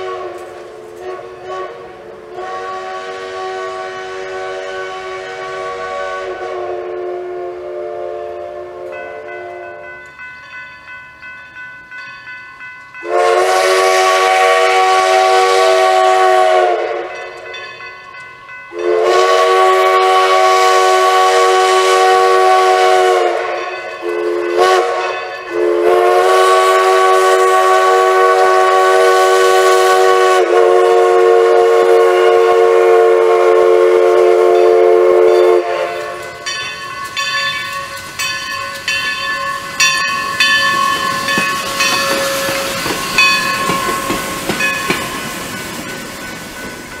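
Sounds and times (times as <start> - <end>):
steam locomotive whistle blasts: 0.0 - 9.9, 13.0 - 17.5, 18.7 - 45.7
crossing bell ringing: 8.6 - 14.6, 16.9 - 20.3, 22.0 - 27.2, 34.4 - 47.0.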